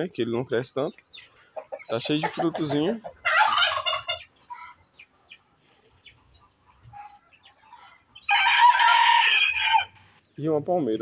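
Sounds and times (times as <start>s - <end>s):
chicken calling: 1.1s - 10.2s
rooster crowing: 8.2s - 10.0s.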